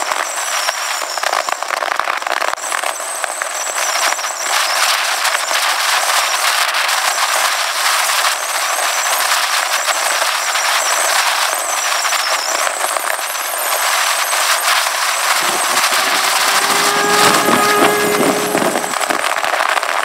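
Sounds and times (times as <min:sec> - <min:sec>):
wind buffeting microphone: 0:14.9 - 0:19.6
low motorcycle engine: 0:15.2 - 0:19.4.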